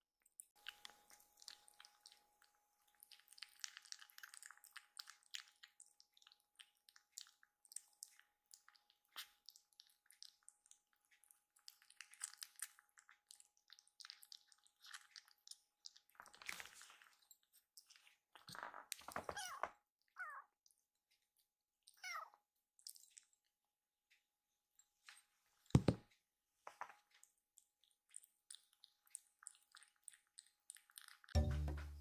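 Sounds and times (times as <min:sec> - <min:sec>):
kitten lapping and chewing: 0:00.2 - 0:32.0
dull knock: 0:25.8 - 0:26.0.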